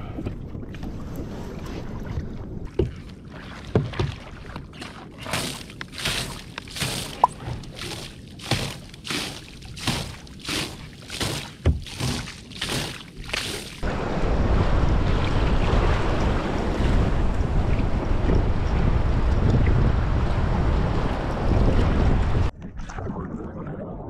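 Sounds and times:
waves: 0:00.0 - 0:22.5
wind: 0:00.0 - 0:22.8
water splashing on kayak deck: 0:00.8 - 0:18.8.

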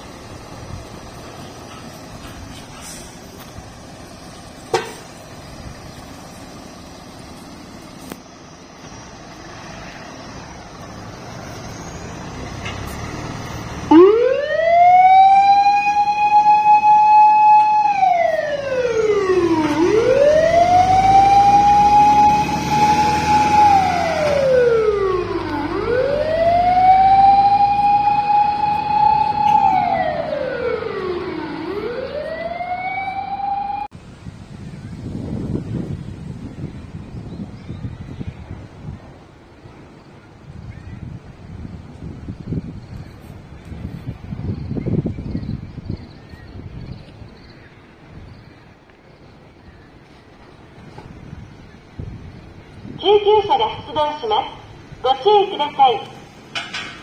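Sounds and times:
truck engine running: 0:00.0 - 0:34.1
fire truck siren wailing: 0:10.7 - 0:33.9, 0:53.0 - 0:56.3.

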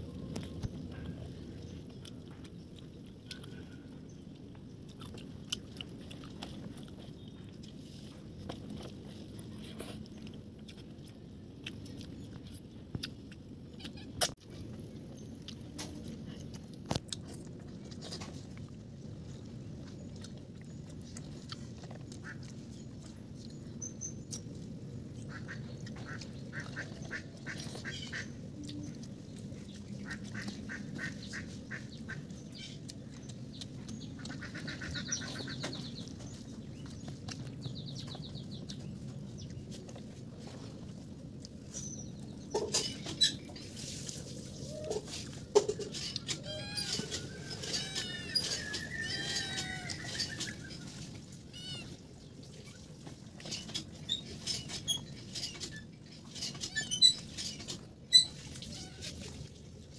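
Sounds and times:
ducks quacking: 0:25.2 - 0:28.4, 0:30.0 - 0:32.8, 0:34.2 - 0:35.9.

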